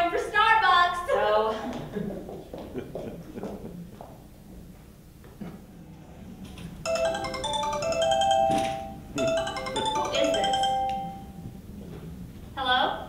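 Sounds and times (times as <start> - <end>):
marimba phone ringtone: 6.9 - 11.5.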